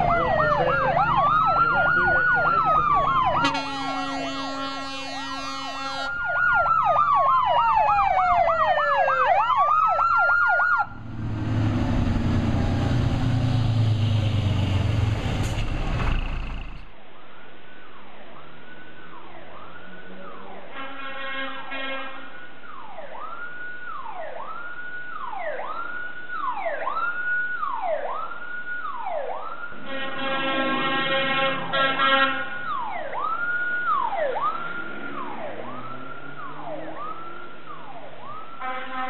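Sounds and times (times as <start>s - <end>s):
fire engine siren: 0.0s - 16.9s, 18.2s - 39.0s
fire engine horn blasts: 3.4s - 6.2s, 20.7s - 22.4s, 29.8s - 32.6s, 38.6s - 39.0s
engine rumble: 10.8s - 16.9s.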